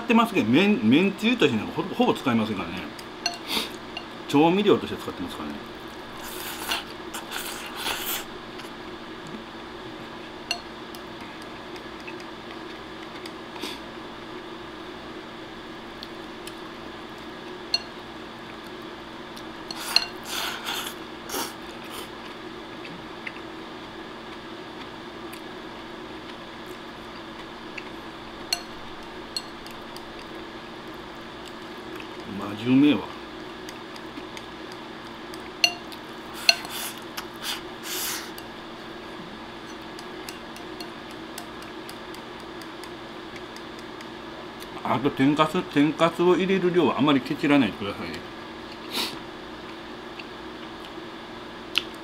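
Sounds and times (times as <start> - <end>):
chopsticks tapping ceramic bowl: 10.5 - 10.7, 17.7 - 18.0, 28.5 - 30.3, 35.3 - 36.7, 39.7 - 42.9
person slurping food: 19.7 - 22.1.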